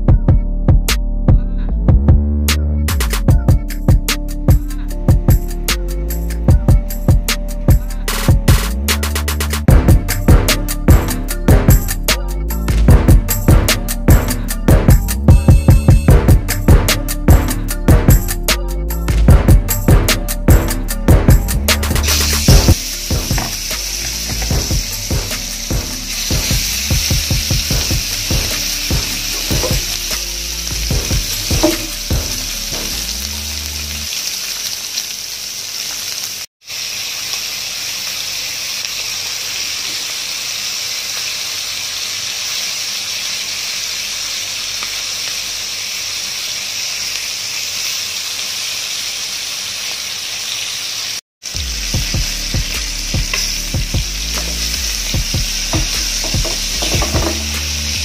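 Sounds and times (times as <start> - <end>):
low regular beat: 0.0 - 34.1, 51.5 - 58.0
chicken frying in hot oil: 22.0 - 58.0.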